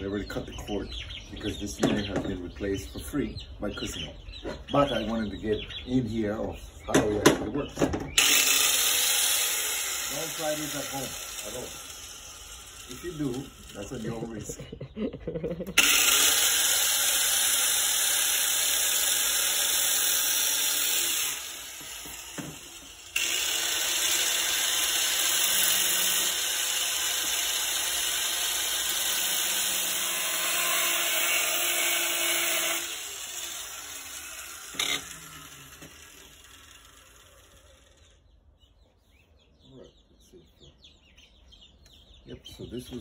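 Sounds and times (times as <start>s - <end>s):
angle grinder cutting plastic: 8.0s - 38.4s.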